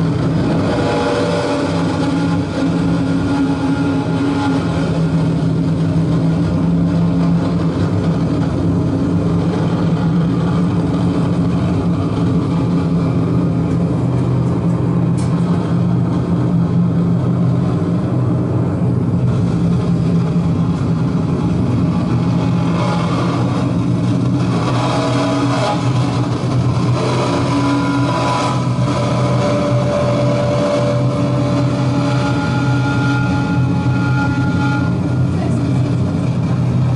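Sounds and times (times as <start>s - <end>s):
dense noise layer: 0.0s - 36.9s
low ambient drone: 0.0s - 36.9s
higher held tones: 0.3s - 6.4s, 22.3s - 36.2s.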